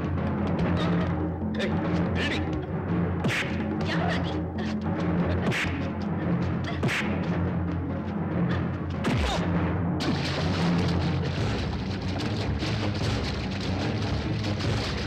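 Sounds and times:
dramatic film music: 0.0s - 15.0s
water splashing heavily: 10.0s - 15.0s.

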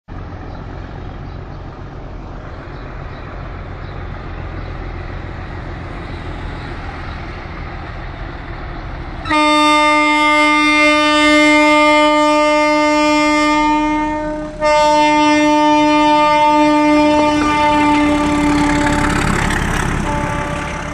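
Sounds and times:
diesel locomotive engine rumble: 0.1s - 20.9s
locomotive horn blast: 9.2s - 20.9s.

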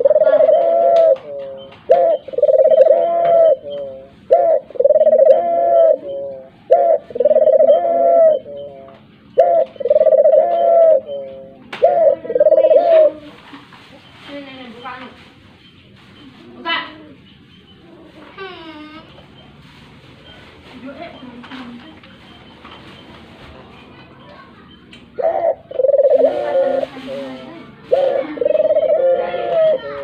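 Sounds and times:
dove cooing: 0.0s - 13.6s, 25.2s - 30.0s.

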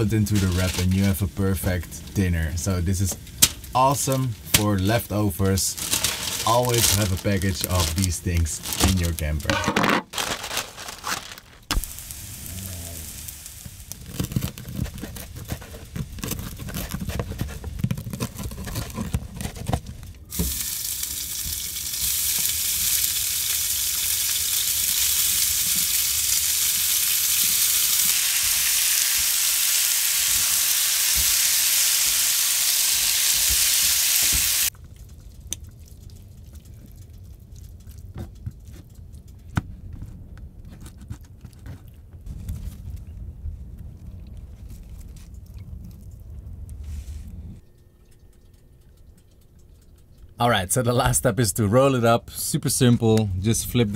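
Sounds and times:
noodles sizzling in frying pan: 5.6s - 9.4s, 10.2s - 14.6s, 20.3s - 34.7s
handling knocks and rustles: 5.6s - 11.9s, 13.6s - 20.6s.

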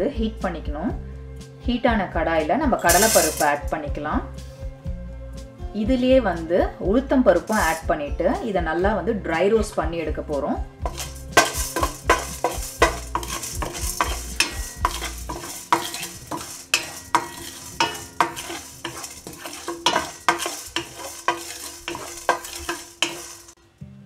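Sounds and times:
wooden spatula scraping pan: 7.4s - 7.8s, 10.8s - 23.6s.

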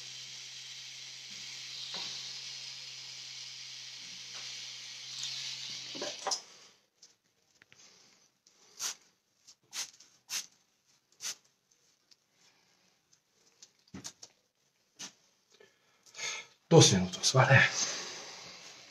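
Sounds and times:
tattoo machine buzzing: 0.0s - 6.3s.

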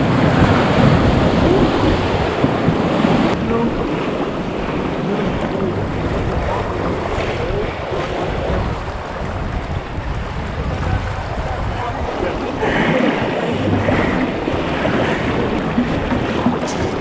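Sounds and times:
river water rushing: 0.0s - 17.0s
wind buffeting microphone: 0.0s - 17.0s.

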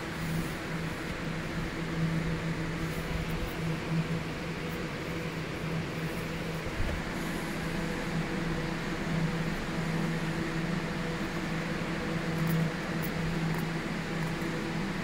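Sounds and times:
refrigeration fans humming: 0.0s - 15.0s
hiss of moving air: 6.0s - 12.0s.

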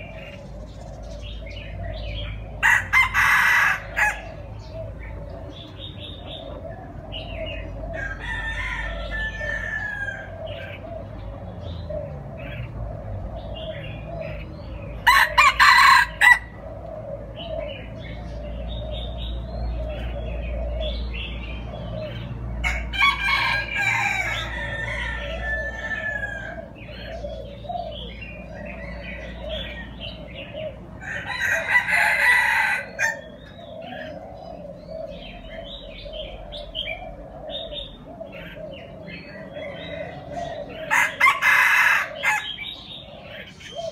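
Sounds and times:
small birds chirping: 0.0s - 3.1s, 3.8s - 15.5s, 16.1s - 22.9s, 23.6s - 41.4s, 42.0s - 43.9s
rooster crowing: 2.6s - 4.3s, 7.9s - 10.4s, 15.0s - 16.6s, 22.6s - 26.8s, 31.0s - 33.3s, 40.8s - 42.6s.

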